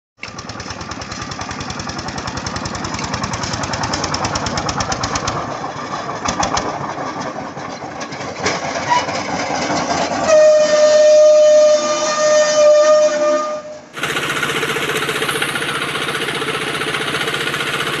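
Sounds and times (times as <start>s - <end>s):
tractor engine chugging: 0.2s - 10.2s, 14.0s - 18.0s
loud steady horn tone: 10.3s - 14.0s.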